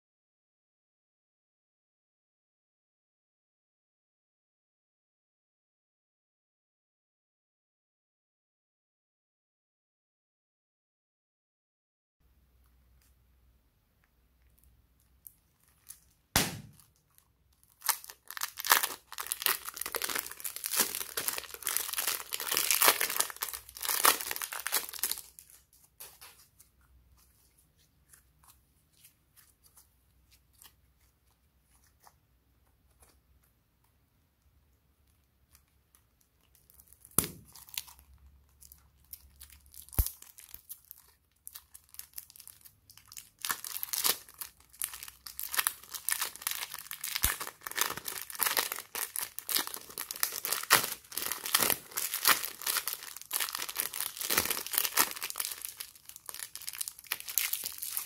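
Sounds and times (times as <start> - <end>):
slime crackling and popping: 15.2 - 16.9, 17.6 - 25.4, 36.6 - 58.0
sharp tap: 16.4 - 16.8.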